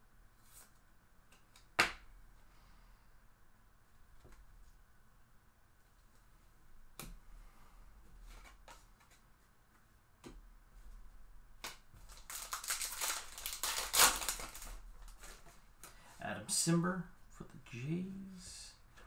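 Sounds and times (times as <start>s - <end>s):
foil wrapper crinkling and tearing: 12.1s - 15.4s.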